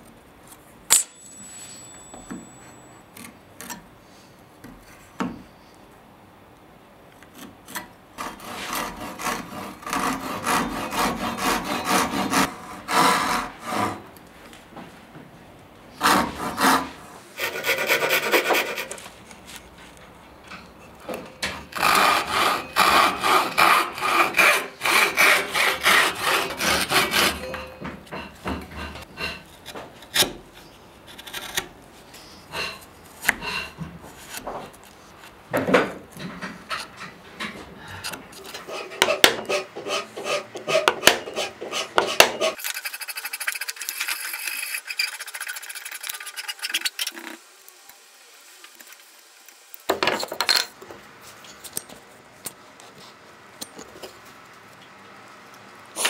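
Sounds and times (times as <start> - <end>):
handsaw cutting wood: 8.2 - 14.1, 16.0 - 19.0, 21.7 - 27.5, 38.5 - 47.0
chisel paring wood: 16.0 - 16.9, 38.1 - 42.6.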